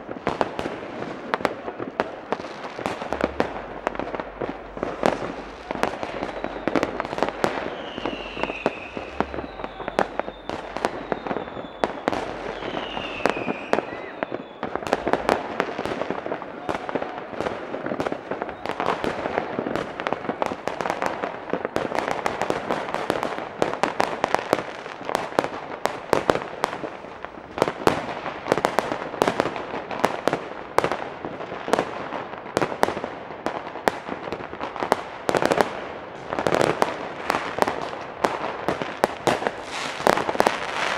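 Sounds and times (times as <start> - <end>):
fireworks bangs and crackling: 0.0 - 40.9
falling firework whistles: 2.4 - 17.4.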